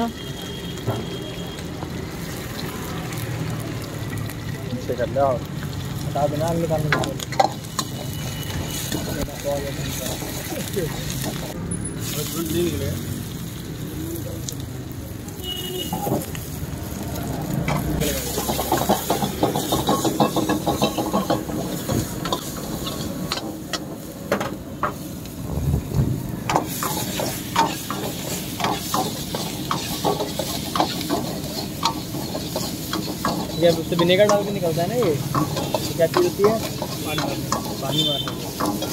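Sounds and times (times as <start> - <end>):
vegetables sizzling in a wok: 0.0 - 38.9
steel ladle scraping a wok: 7.0 - 10.5, 18.0 - 24.0, 26.5 - 38.9.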